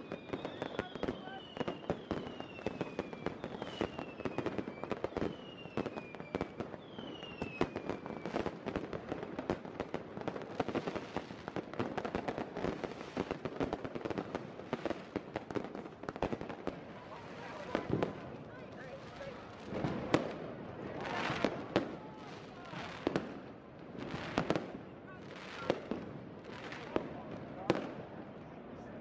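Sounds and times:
fireworks whistling falling in pitch: 0.0s - 8.6s
fireworks crackling and banging: 0.0s - 29.0s.

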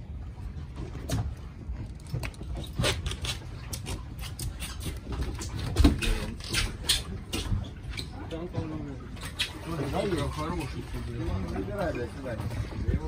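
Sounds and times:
wind rumble on microphone: 10.5s - 13.0s.

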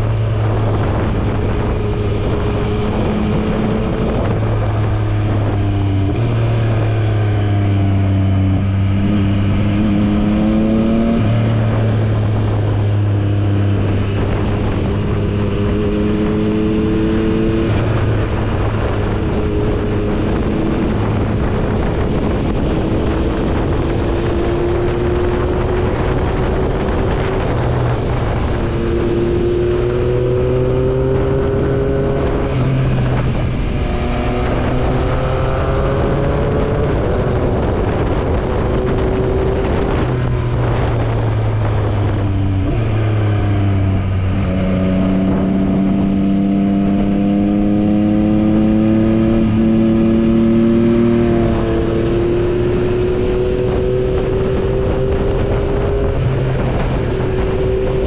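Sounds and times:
motorcycle engine revving: 0.0s - 58.0s
wind rushing over microphone: 0.0s - 58.0s.

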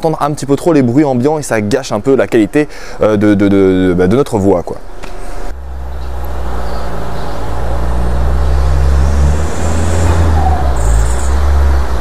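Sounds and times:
car engine rumble driving past: 5.6s - 12.0s.

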